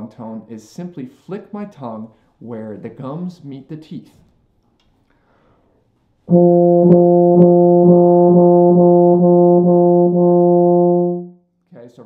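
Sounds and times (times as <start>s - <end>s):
euphonium playing tongued note: 6.3s - 11.3s.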